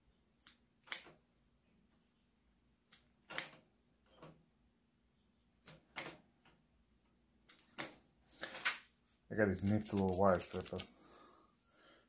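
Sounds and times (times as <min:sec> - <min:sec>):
wire stripper clicks and snips: 0:00.4 - 0:01.2, 0:02.9 - 0:03.6.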